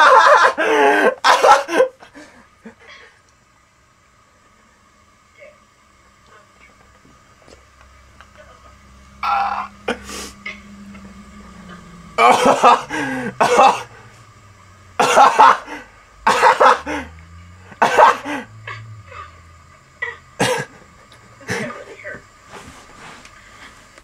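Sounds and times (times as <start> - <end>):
man laughing hard: 0.0 - 2.8, 12.2 - 14.0, 15.0 - 17.2, 17.8 - 18.9.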